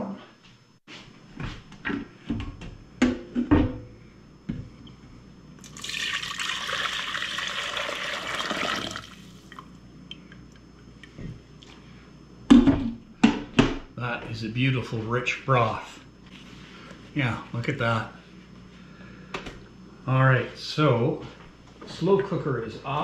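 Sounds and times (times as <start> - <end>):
broth pouring into saucepan: 5.6 - 9.6.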